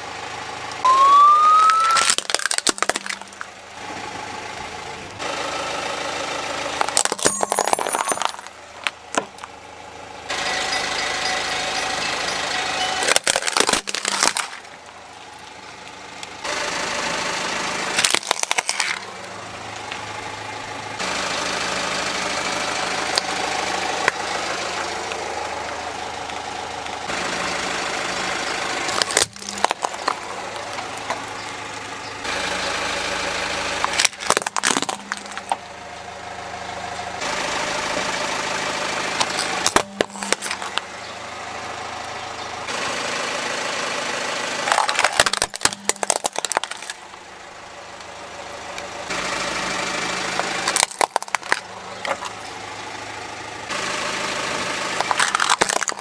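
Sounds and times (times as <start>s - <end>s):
car engine running slowly: 0.0s - 56.0s
tyre crushing plastic and glass: 1.7s - 3.6s, 6.8s - 9.6s, 11.7s - 14.8s, 18.0s - 19.1s, 28.9s - 31.6s, 33.8s - 35.6s, 39.2s - 40.9s, 44.6s - 47.2s, 50.6s - 52.5s, 55.0s - 56.0s.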